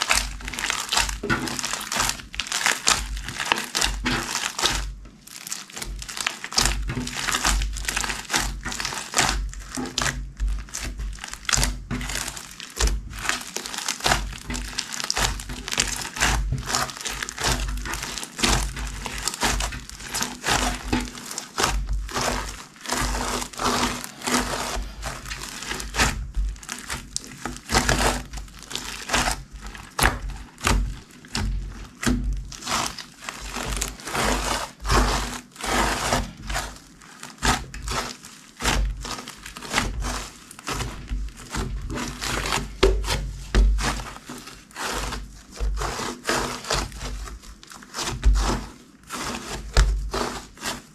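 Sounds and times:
slime crackling and popping: 0:00.0 - 0:50.9
soft low thumps: 0:18.6 - 0:32.8.

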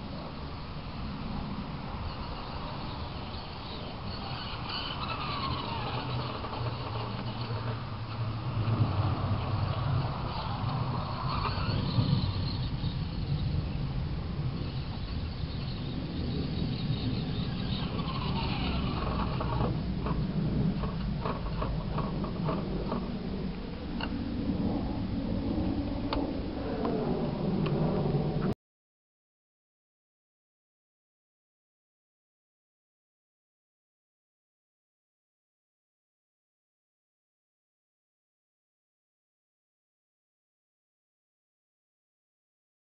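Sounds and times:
electric motor and gearbox whine: 0:00.0 - 0:28.5
steady low hum: 0:00.0 - 0:28.6
steady low rumble: 0:00.0 - 0:28.6
tyre noise: 0:02.1 - 0:13.9, 0:14.5 - 0:23.2.

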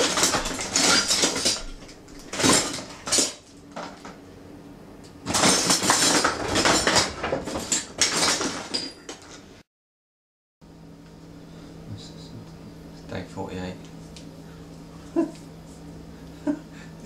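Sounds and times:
dishes and cutlery clattering: 0:00.0 - 0:04.0, 0:05.3 - 0:09.4.

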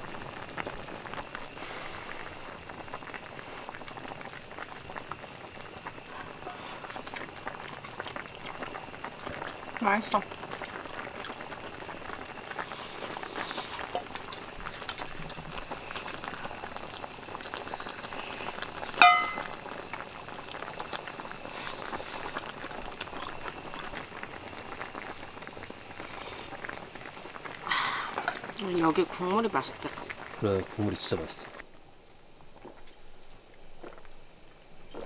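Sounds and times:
soup bubbling: 0:00.0 - 0:31.7
sharp ringing clink: 0:19.0 - 0:19.5.

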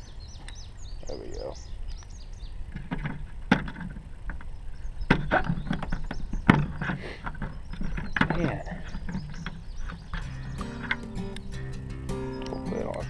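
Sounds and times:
handling noise: 0:02.7 - 0:11.4.

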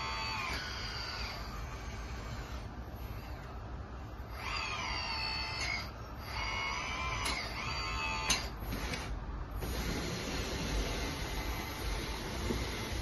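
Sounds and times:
hydraulic pump whining: 0:04.3 - 0:13.0.

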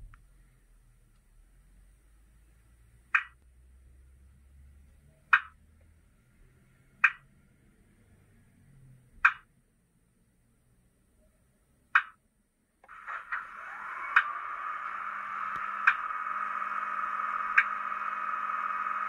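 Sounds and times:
sharp clicks from small speaker: 0:03.2 - 0:03.5, 0:12.8 - 0:14.4, 0:15.5 - 0:16.0.

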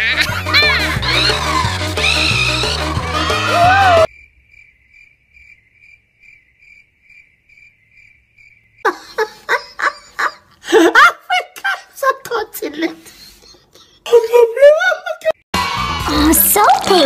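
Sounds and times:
child crying out loudly: 0:02.0 - 0:04.1
crickets chirping: 0:04.1 - 0:09.9.

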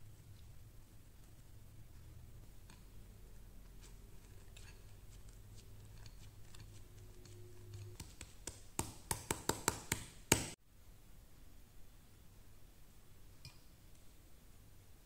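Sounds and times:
spatula scraping mesh strainer: 0:02.5 - 0:08.5.

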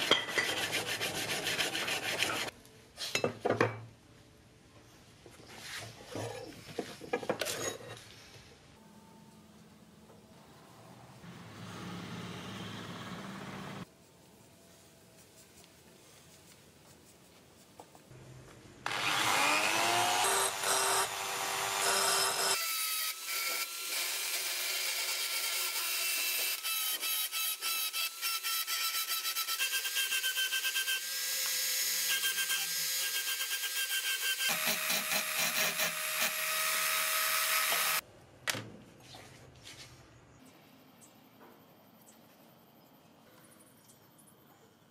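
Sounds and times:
rotary tool grinding steel: 0:00.0 - 0:02.5, 0:18.9 - 0:38.0.

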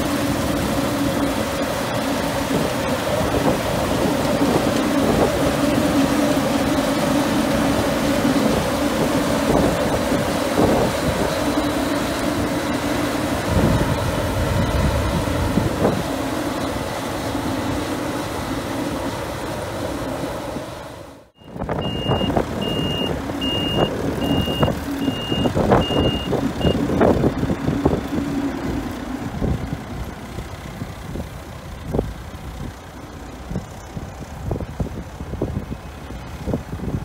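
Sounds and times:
combine harvester running: 0:00.0 - 0:37.0
tractor engine running: 0:00.0 - 0:37.0
reversing alarm beeping: 0:21.4 - 0:26.9.

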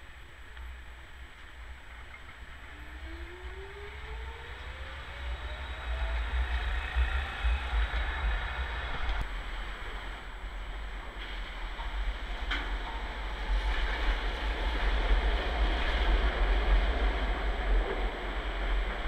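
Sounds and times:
wheels rolling on rail: 0:00.0 - 0:19.0
tram motor whine rising: 0:02.5 - 0:09.2.

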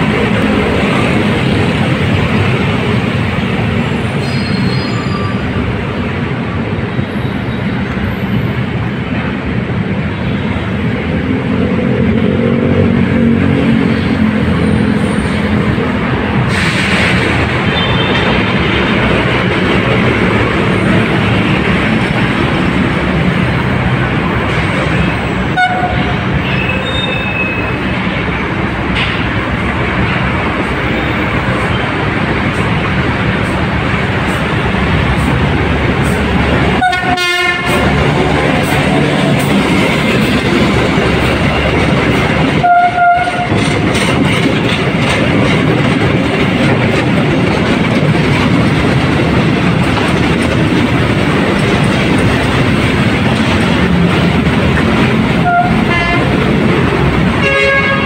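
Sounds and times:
train engines and wheels: 0:00.0 - 0:58.0
train horn: 0:25.5 - 0:27.6, 0:36.8 - 0:37.9, 0:42.6 - 0:43.7, 0:55.4 - 0:56.4, 0:57.4 - 0:58.0.

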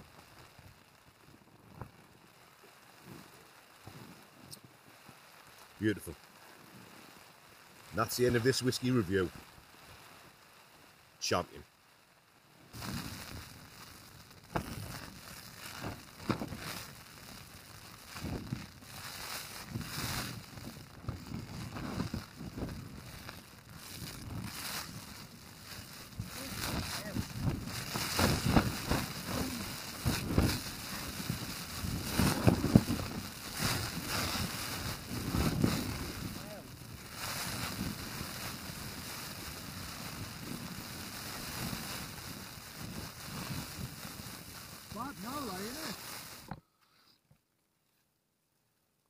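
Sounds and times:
rough rustling and crackling: 0:00.0 - 0:11.8, 0:12.4 - 0:46.6
wind buffeting microphone: 0:19.6 - 0:45.1.

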